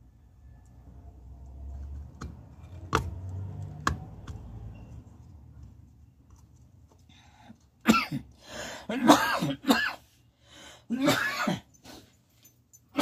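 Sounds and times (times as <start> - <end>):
person coughing and clearing throat: 7.8 - 10.1, 10.9 - 11.8.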